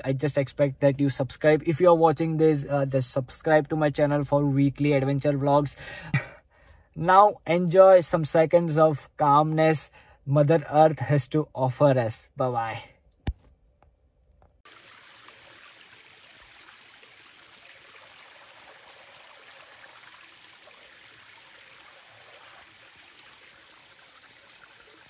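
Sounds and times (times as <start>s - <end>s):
creek trickling over stones: 14.6s - 25.0s.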